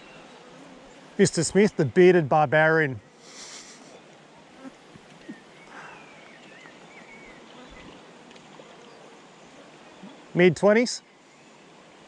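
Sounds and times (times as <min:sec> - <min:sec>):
steady low hiss: 0:00.0 - 0:12.0
faint chirps: 0:05.2 - 0:08.0.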